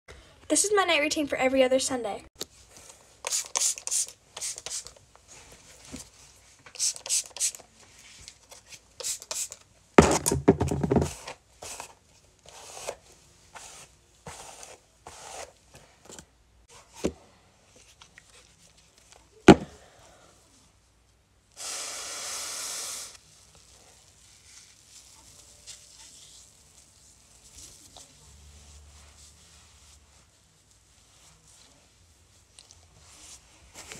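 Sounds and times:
steady hiss: 21.5s - 23.5s
cloth and bottle rustling: 23.2s - 33.9s.

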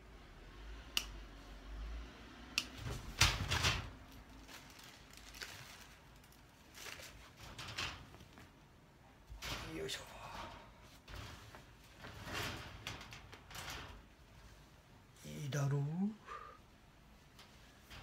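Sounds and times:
wire panels rattling: 2.7s - 15.2s, 17.2s - 18.0s.

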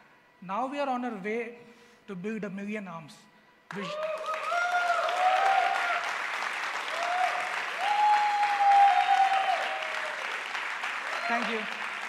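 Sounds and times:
cheering whoops: 3.7s - 11.8s
audience applauding: 3.7s - 12.0s.

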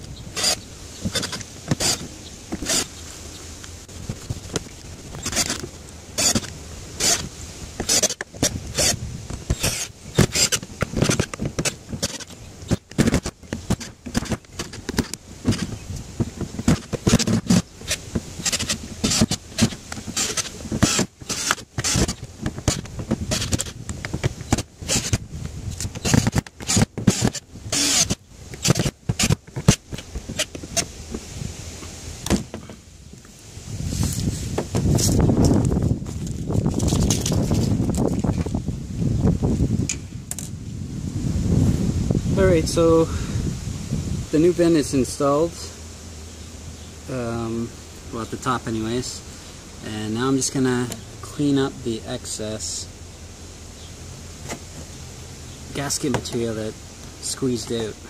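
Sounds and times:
cordless drill driving screws: 0.4s - 2.9s, 5.1s - 15.7s, 16.6s - 23.8s, 24.4s - 25.2s, 25.8s - 30.9s.

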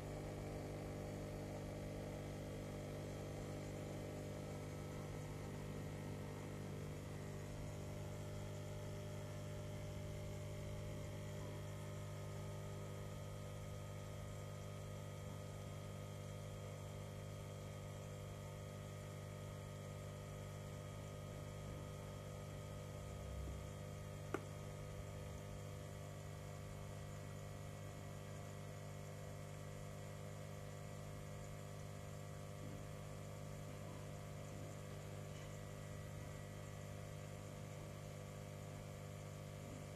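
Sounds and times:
water pump hum: 0.0s - 39.9s
small click: 24.3s - 24.6s.

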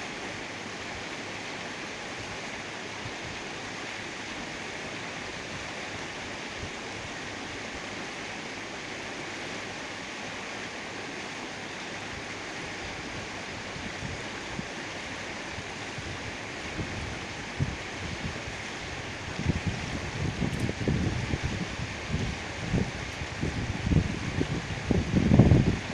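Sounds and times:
steady rushing hiss: 0.0s - 25.9s
wind buffeting microphone: 15.4s - 25.9s.

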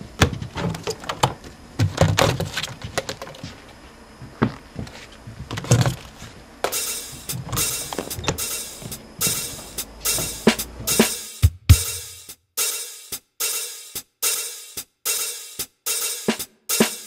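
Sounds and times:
knocks and thumps: 0.0s - 12.0s
drum kit with cymbal crashes: 6.6s - 17.0s.

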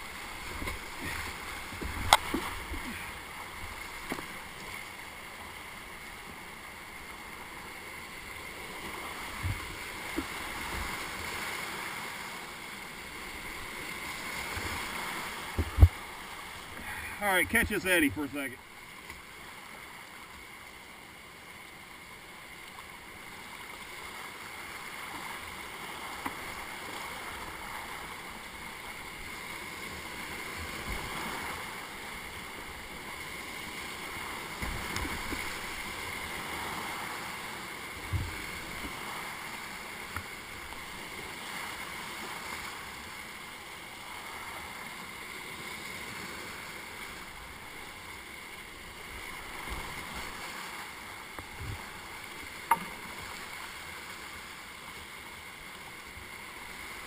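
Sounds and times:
rushing river rapids: 0.0s - 57.0s
paddle knocks against boat: 15.5s - 16.0s.

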